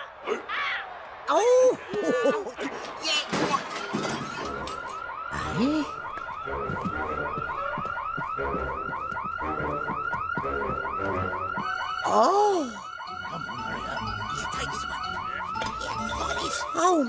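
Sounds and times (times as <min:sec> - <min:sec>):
electronic alarm siren warbling: 0:04.2 - 0:17.0.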